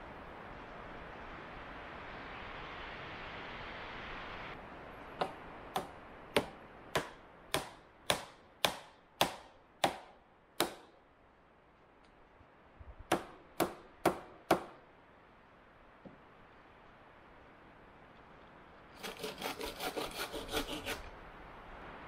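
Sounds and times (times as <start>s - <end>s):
hand tool striking wood: 5.2s - 10.9s, 13.1s - 14.8s.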